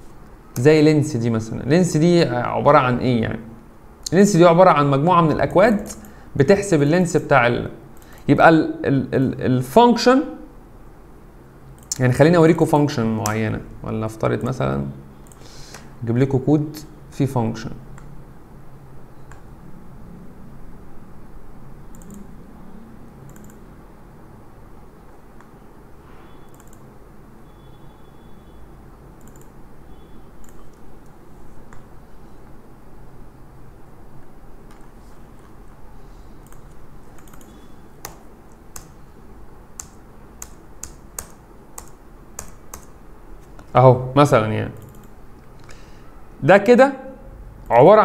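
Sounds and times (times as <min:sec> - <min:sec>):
faint low background hum: 0:00.0 - 0:48.0
sharp keyboard or mouse clicks: 0:21.9 - 0:22.2, 0:23.3 - 0:23.6, 0:26.5 - 0:26.9, 0:29.2 - 0:29.6, 0:36.4 - 0:39.0, 0:39.8 - 0:43.7
mouse button double-clicking: 0:26.4 - 0:26.8.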